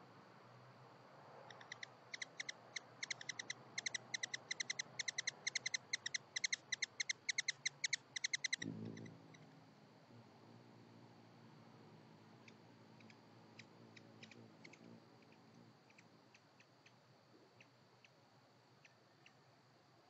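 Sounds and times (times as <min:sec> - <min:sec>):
hummingbird chattering: 0:01.5 - 0:09.6, 0:12.2 - 0:17.0.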